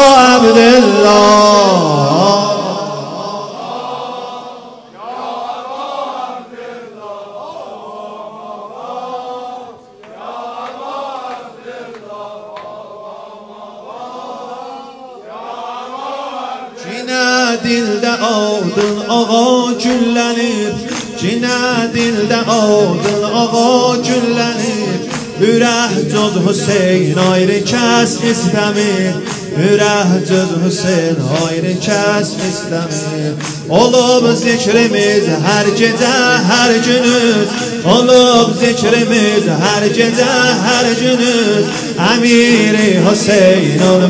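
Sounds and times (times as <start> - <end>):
men chanting in unison: 0.0 - 44.0
rhythmic chest beating: 17.6 - 44.0.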